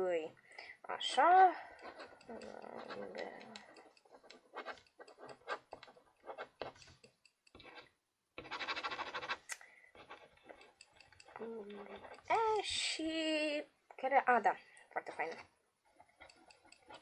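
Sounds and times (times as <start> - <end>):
faint scratching and rubbing: 0.9 - 13.6, 14.3 - 17.0
scattered clicks: 1.7 - 5.8.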